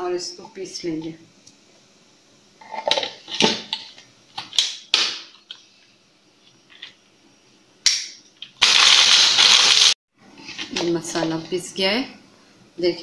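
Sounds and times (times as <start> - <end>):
spice grinder grinding: 8.4 - 10.8.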